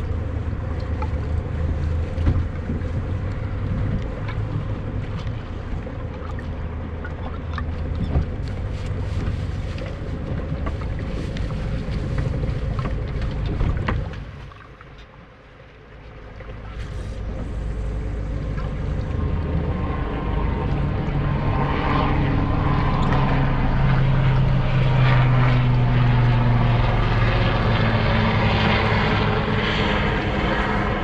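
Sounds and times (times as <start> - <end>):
wind buffeting microphone: 0.0 - 15.2, 16.0 - 31.0
water splashes: 0.0 - 31.0.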